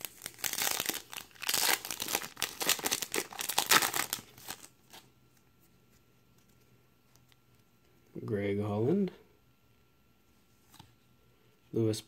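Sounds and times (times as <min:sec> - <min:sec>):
foil wrapper crinkling: 0:00.0 - 0:05.1.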